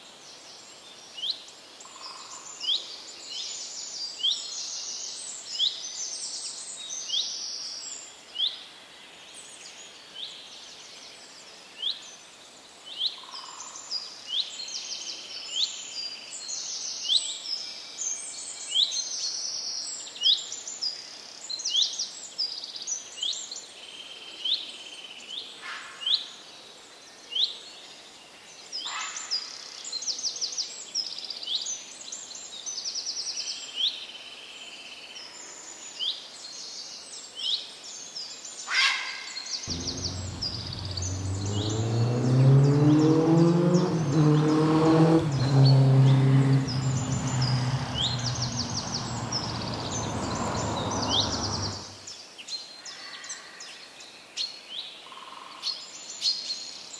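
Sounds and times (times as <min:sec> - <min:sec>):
songbirds chirping: 0:39.7 - 0:52.3.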